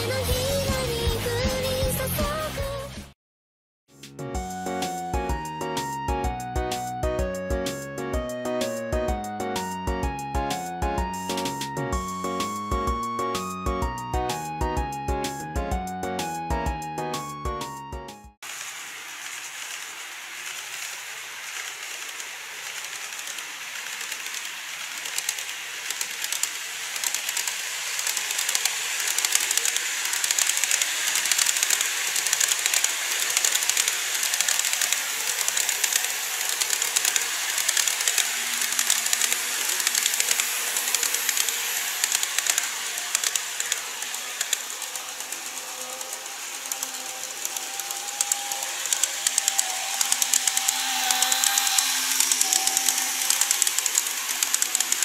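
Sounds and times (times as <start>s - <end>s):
model train rushing hiss: 18.4s - 55.0s
model train wheels clicking: 18.4s - 55.0s
thin motor hum: 18.7s - 55.0s.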